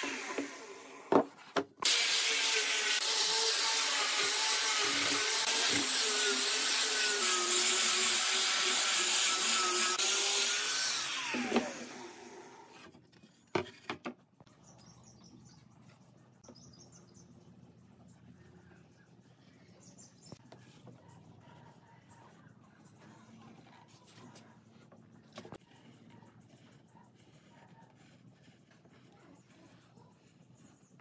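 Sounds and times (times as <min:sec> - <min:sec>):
angle grinder sanding wood: 0:00.0 - 0:01.1, 0:01.8 - 0:12.9.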